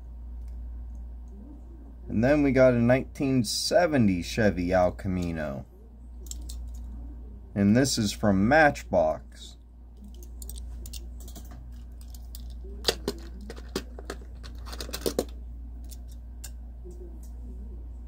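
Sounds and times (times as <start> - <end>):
low steady hum: 0.0 - 18.0
toy cars clicking and tapping: 10.0 - 15.3.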